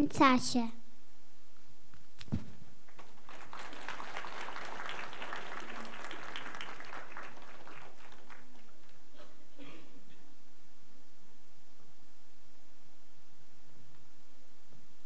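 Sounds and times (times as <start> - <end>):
low thump: 2.2 - 2.6
audience clapping: 2.8 - 9.2.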